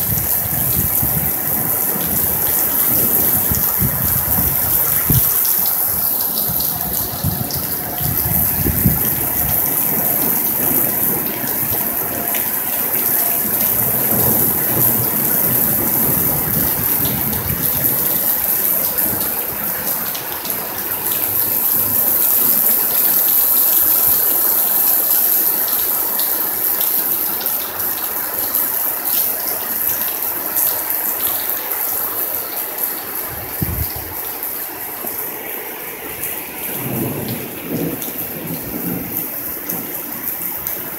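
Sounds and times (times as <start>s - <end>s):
thunder rolling: 0.0s - 19.9s, 36.1s - 40.9s
heavy rain pouring: 0.0s - 40.9s.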